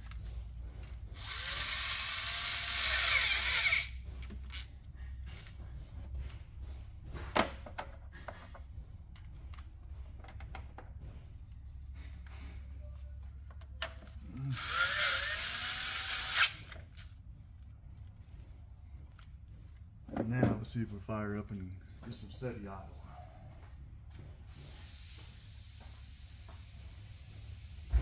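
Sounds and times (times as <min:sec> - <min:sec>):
cordless driver whine: 0:01.2 - 0:04.7, 0:14.2 - 0:16.8.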